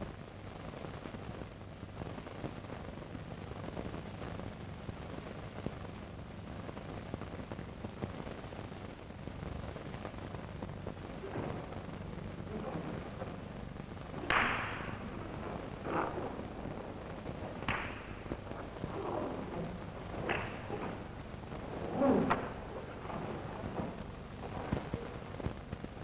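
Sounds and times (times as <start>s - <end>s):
film soundtrack hiss: 0.0s - 26.0s
low hum: 10.5s - 26.0s.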